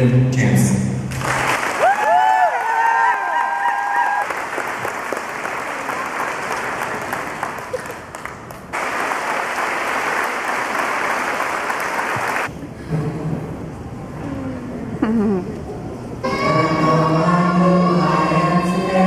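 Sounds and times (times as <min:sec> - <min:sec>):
crowd applauding: 0:01.1 - 0:12.5.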